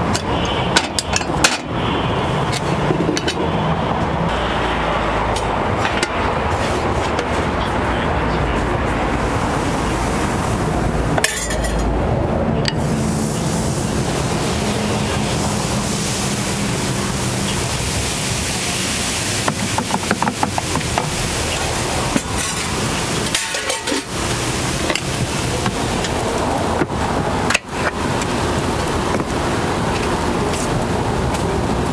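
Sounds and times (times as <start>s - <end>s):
batter sizzling on griddle: 12.8s - 26.2s.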